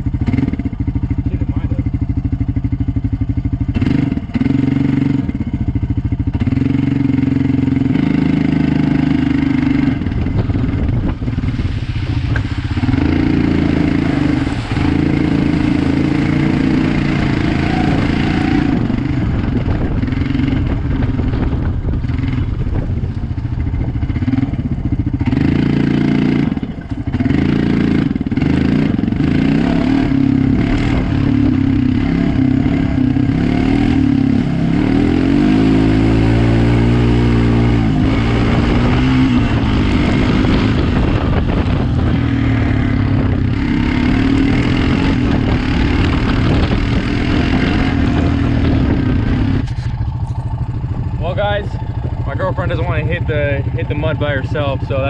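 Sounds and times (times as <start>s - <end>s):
quad engine revving: 0.0s - 55.0s.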